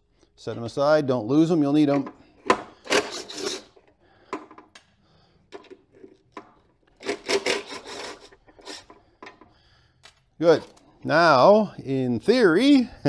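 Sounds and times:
scraping and rubbing on steel case: 2.8s - 4.0s, 5.5s - 9.5s.

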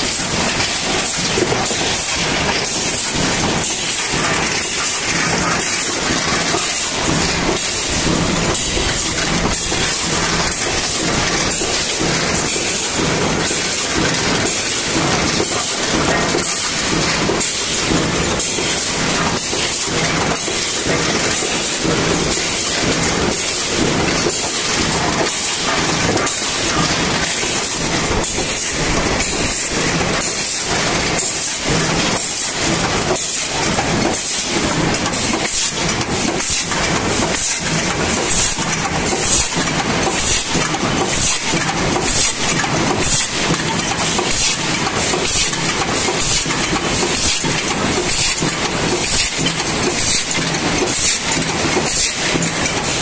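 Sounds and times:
machinery clattering: 0.0s - 53.0s.

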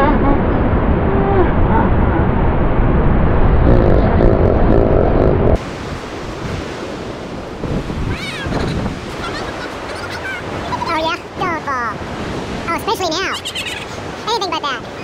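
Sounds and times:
wind buffeting microphone: 0.0s - 9.9s
surf breaking on beach: 3.3s - 13.4s.

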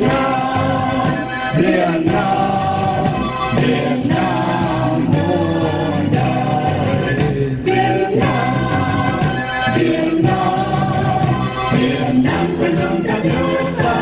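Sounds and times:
choir singing long notes: 0.0s - 14.0s.

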